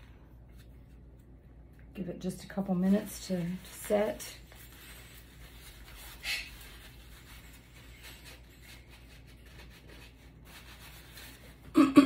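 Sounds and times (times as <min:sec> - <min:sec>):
handling rustle: 0:02.4 - 0:11.7.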